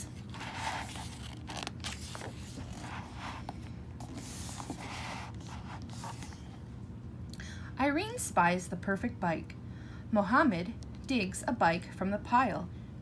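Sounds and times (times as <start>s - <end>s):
paper page turning: 0.0s - 6.4s.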